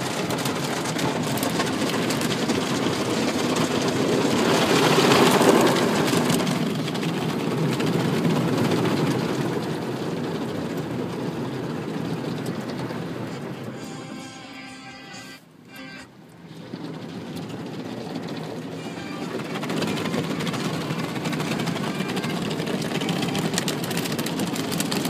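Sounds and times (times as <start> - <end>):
car wash brushes and water rushing: 0.0 - 25.0.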